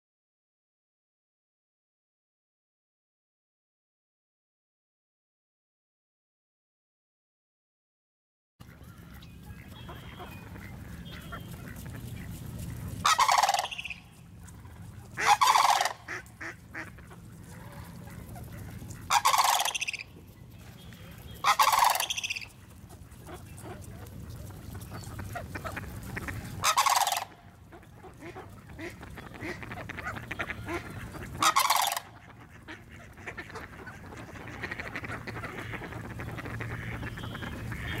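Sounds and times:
cranes calling: 8.6 - 23.9, 24.5 - 38.0
low background rumble: 8.6 - 38.0.

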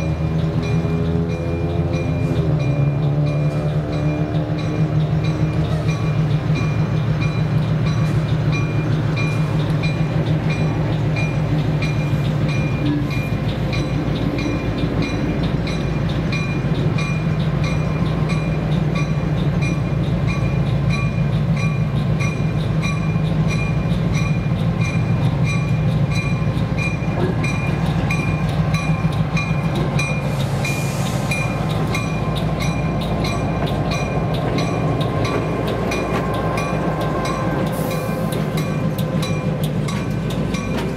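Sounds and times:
locomotive bell ringing: 0.0 - 40.9
air hiss: 30.2 - 31.9.

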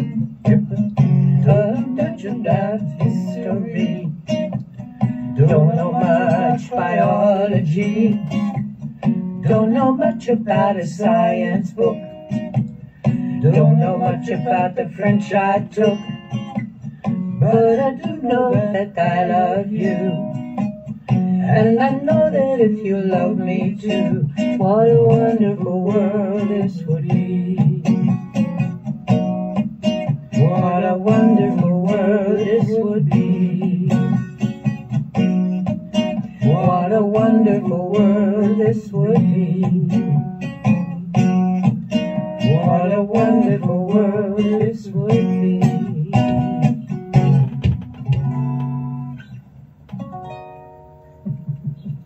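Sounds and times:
acoustic guitar strumming: 0.0 - 52.0
wordless vocal: 5.1 - 8.5, 12.8 - 16.2, 17.4 - 20.3, 30.3 - 34.3, 42.4 - 46.6.

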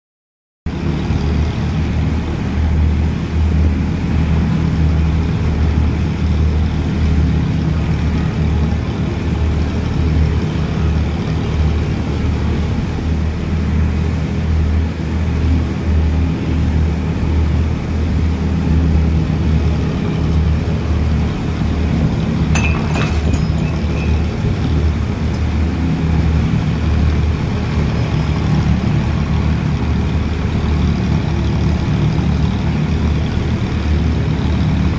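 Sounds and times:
low engine drone: 0.7 - 34.9
thresher rumble: 14.3 - 34.9.

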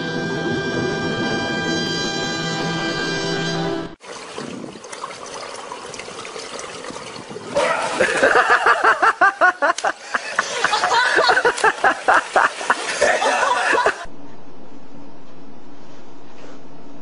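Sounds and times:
water splashing in a pool: 4.0 - 14.1.

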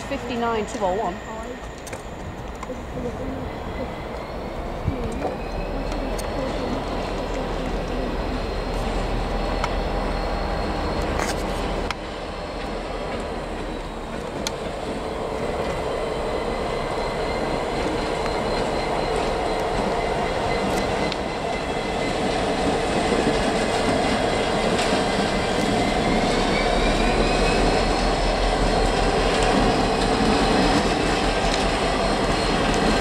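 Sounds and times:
diesel locomotive engine running: 0.0 - 33.0.

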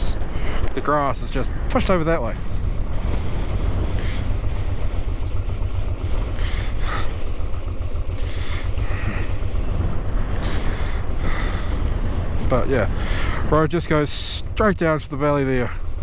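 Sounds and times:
motorcycle engine running: 0.0 - 16.0
wind buffeting microphone: 0.0 - 16.0.

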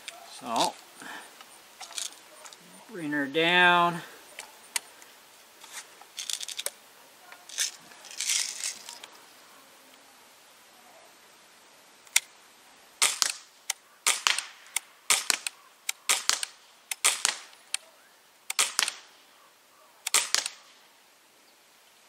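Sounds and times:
air rifle shots popping: 13.0 - 13.4, 14.0 - 17.8, 18.5 - 19.1, 20.0 - 20.7.

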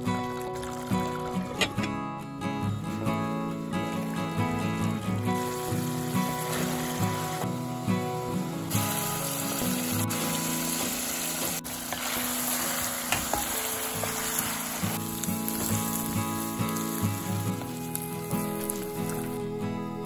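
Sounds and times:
background music: 0.0 - 20.0
meat sizzling in a pot: 3.8 - 19.4
wooden spatula stirring: 9.6 - 16.1.

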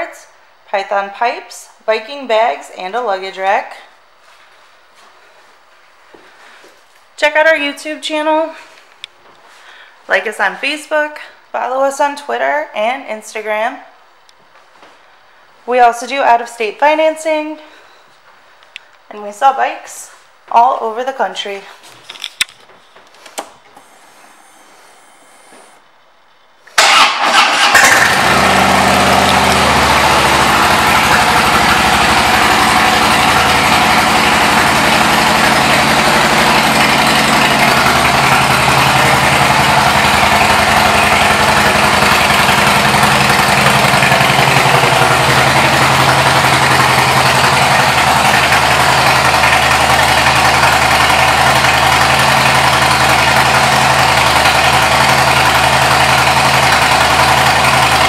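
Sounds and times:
motorcycle engine idling: 26.8 - 58.0.

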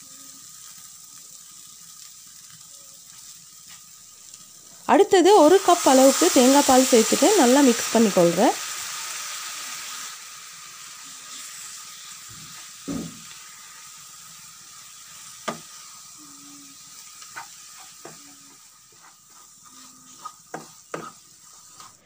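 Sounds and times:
food sizzling in a frying pan: 0.0 - 22.0.

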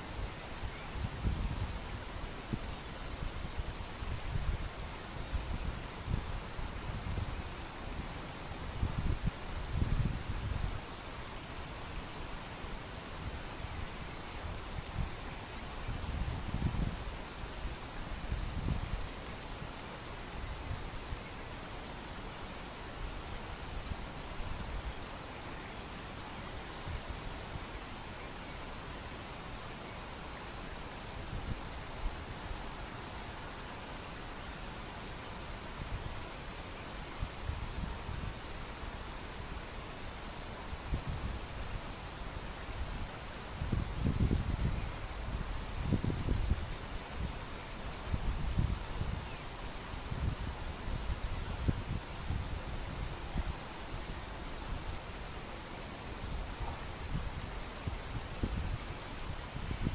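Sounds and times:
wind rumble on microphone: 0.0 - 21.2, 31.2 - 32.2, 37.0 - 38.6, 40.7 - 55.3, 56.1 - 59.9.

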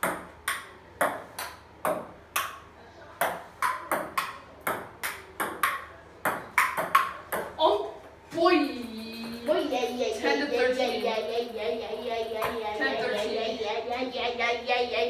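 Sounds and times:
paddles striking ping-pong ball: 0.0 - 7.6
ping-pong ball bouncing on table: 0.0 - 7.6.

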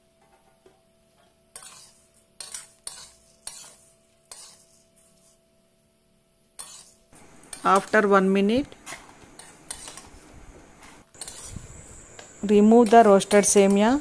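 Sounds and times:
metal spatula scraping a pan: 1.5 - 5.4, 6.6 - 8.1, 8.8 - 10.2, 10.9 - 11.8.

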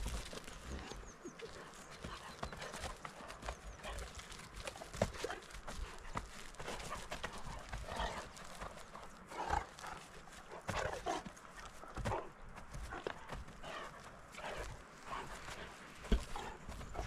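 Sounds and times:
hooves and paws scuffling on turf: 0.0 - 17.0.

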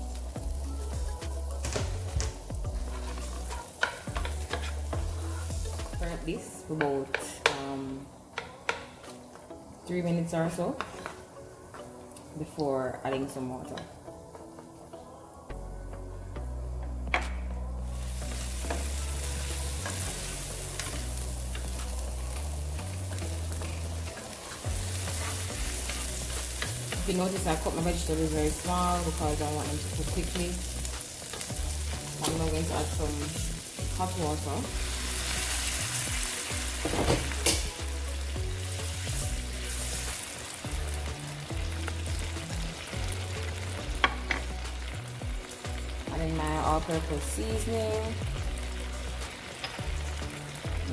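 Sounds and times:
background music with bass: 0.0 - 6.4, 15.4 - 50.9
vegetables sizzling in frying pan: 0.0 - 14.4, 17.9 - 50.9
wooden spoon scraping pan: 2.8 - 5.0, 23.6 - 27.1.

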